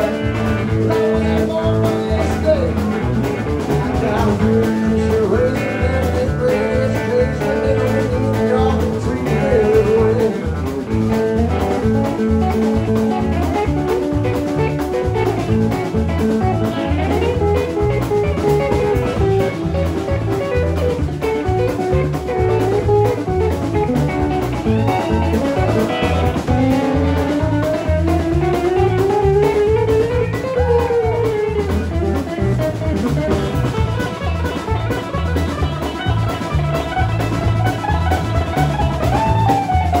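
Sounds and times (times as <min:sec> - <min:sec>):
drum kit steady beat: 0:00.0 - 0:40.0
electric bass: 0:00.0 - 0:40.0
electric guitar lead: 0:00.0 - 0:40.0.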